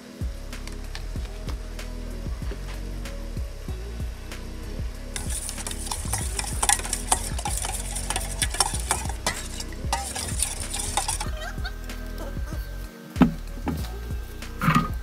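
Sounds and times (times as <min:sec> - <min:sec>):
metal spoon stirring in a bowl: 0:05.2 - 0:11.5.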